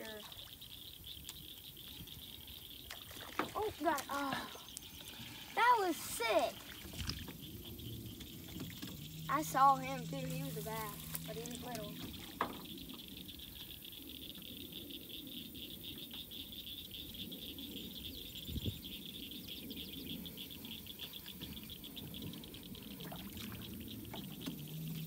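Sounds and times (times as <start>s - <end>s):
chorus of trilling animals: 1.6s - 15.9s.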